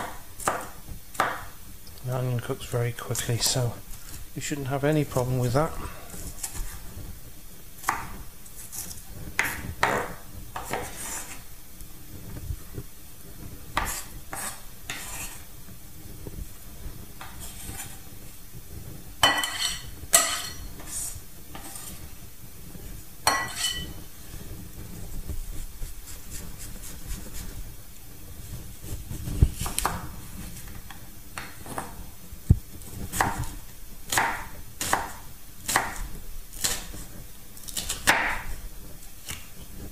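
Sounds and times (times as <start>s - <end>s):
knife chopping on wooden board: 0.0s - 1.5s, 7.8s - 8.1s, 9.4s - 11.4s, 13.8s - 15.4s, 34.1s - 36.0s, 37.7s - 38.5s.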